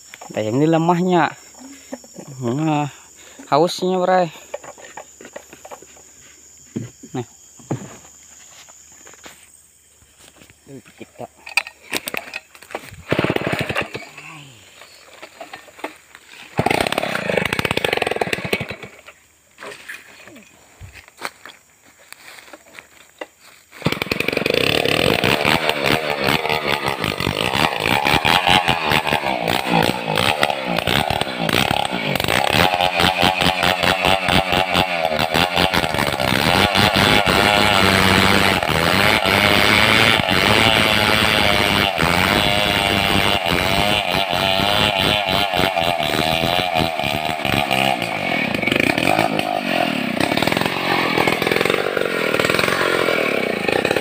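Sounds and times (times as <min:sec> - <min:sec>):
chainsaw cutting wood: 0:11.6 - 0:19.9, 0:23.7 - 0:54.0.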